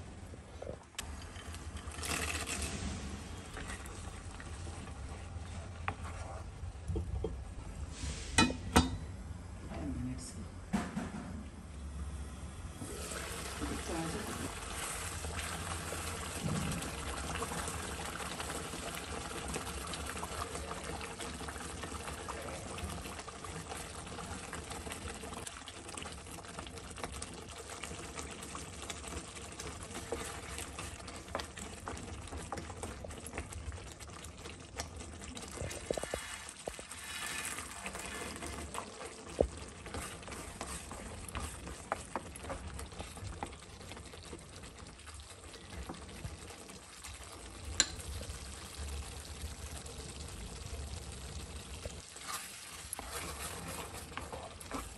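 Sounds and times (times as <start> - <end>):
gravy simmering and bubbling: 0.0 - 54.9
wooden spatula scraping pan: 1.3 - 4.2, 4.8 - 6.7, 35.4 - 44.0, 52.0 - 54.9.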